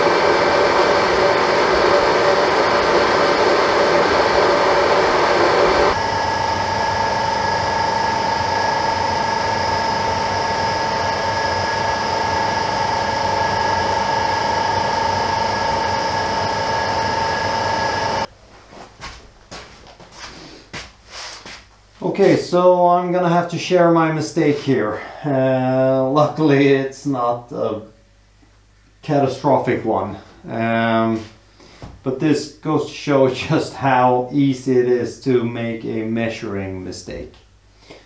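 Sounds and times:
metal lathe humming and whining: 0.0s - 18.3s.

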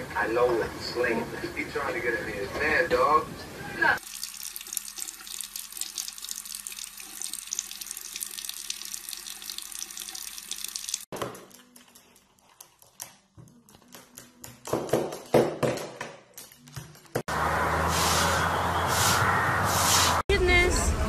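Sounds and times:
running water: 4.0s - 11.1s.

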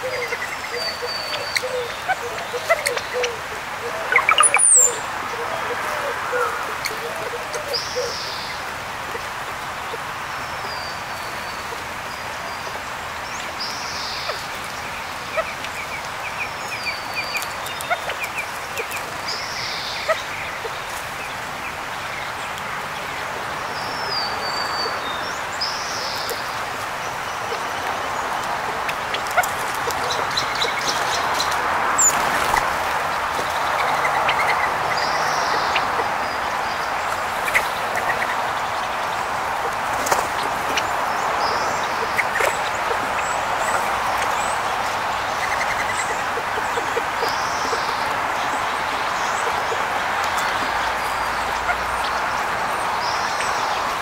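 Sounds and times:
steady outdoor hiss: 0.0s - 54.0s
small birds chirping and whistling: 4.1s - 5.0s.

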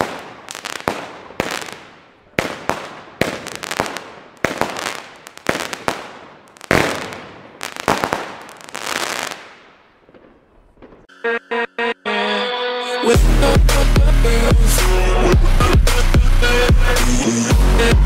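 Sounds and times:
fireworks bangs: 0.0s - 11.1s.

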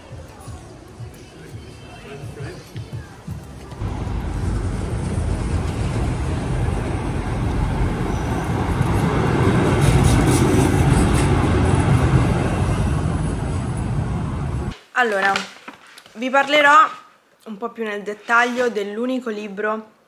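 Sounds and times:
traffic noise: 0.0s - 14.8s
electric tram rumbling on rails: 3.7s - 14.7s.

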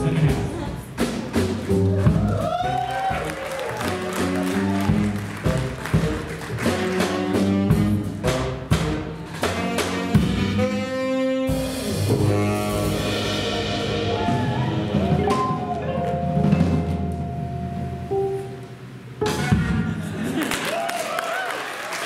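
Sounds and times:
upright double bass: 0.0s - 18.3s
saxophone: 1.7s - 16.2s.

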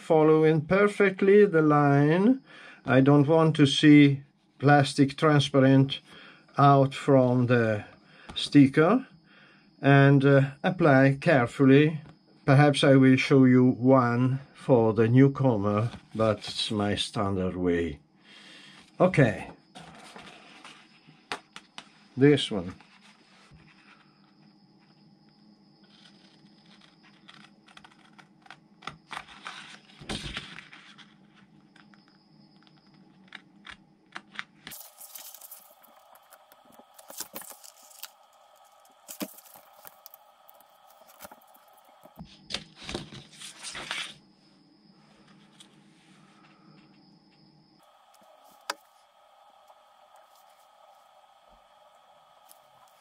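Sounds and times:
plastic sheet crinkling: 34.7s - 42.2s.

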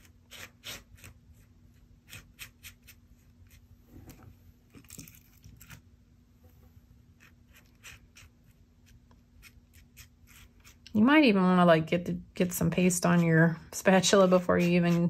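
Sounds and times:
palette knife scraping paste: 0.0s - 3.6s, 7.2s - 11.0s, 12.7s - 15.0s.

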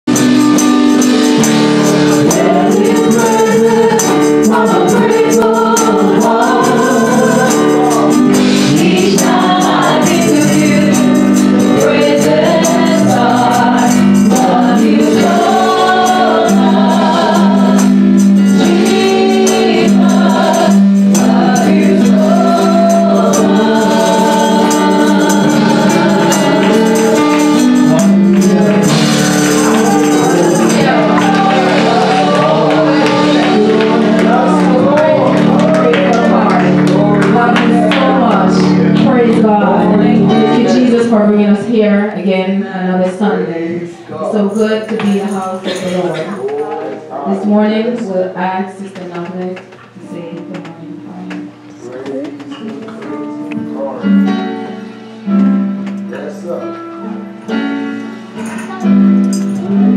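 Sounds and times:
tambourine shaken: 0.1s - 39.2s, 44.2s - 47.7s, 58.3s - 59.9s
group singing through microphones: 0.1s - 54.4s, 58.4s - 59.9s
held chords: 0.1s - 59.9s.

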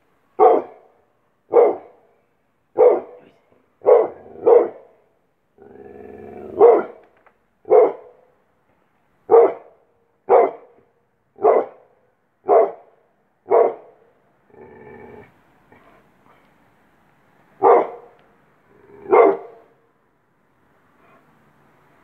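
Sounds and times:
dog barking deeply: 0.4s - 2.1s, 2.7s - 5.0s, 5.6s - 7.0s, 7.6s - 8.3s, 9.3s - 10.8s, 11.4s - 14.0s, 17.6s - 18.2s, 18.8s - 19.8s
dog growling: 5.6s - 6.7s, 14.5s - 16.0s, 18.7s - 19.5s.

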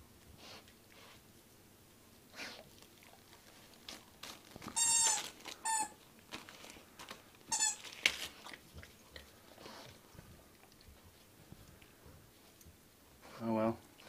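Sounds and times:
dog chewing toy: 2.4s - 12.8s
wrapping paper rustling: 3.2s - 8.6s
squeaky toy squeaking: 4.8s - 6.0s, 7.5s - 7.8s.

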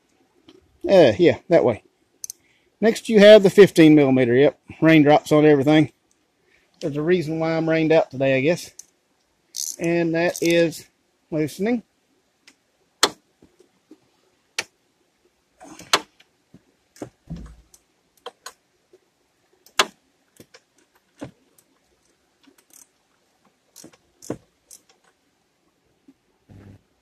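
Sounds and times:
metallic clicks of wrench and bolts: 9.5s - 10.6s, 22.0s - 23.0s, 23.8s - 25.1s
dull thump: 17.0s - 17.7s.

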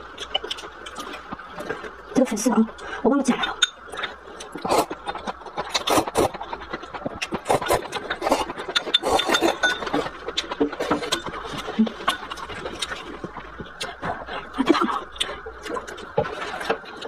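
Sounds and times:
person slurping noodles: 4.5s - 6.4s, 7.3s - 9.6s.

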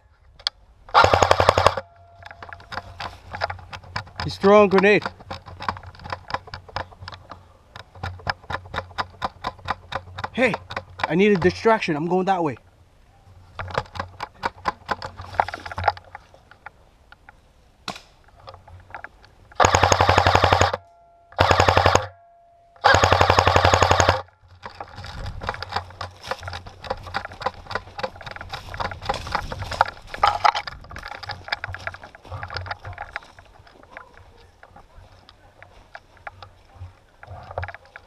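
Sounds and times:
airsoft rifle firing bursts: 0.9s - 1.8s, 19.6s - 20.8s, 21.4s - 22.1s, 22.8s - 24.3s
crunching and rustling: 1.0s - 12.6s, 13.3s - 19.7s, 23.5s - 38.0s.

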